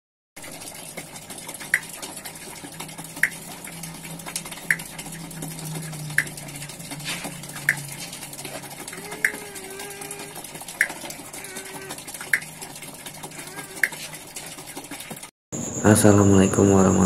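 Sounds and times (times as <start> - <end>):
water splashing and trickling: 0.4 - 15.4
low steady hum: 0.5 - 14.0.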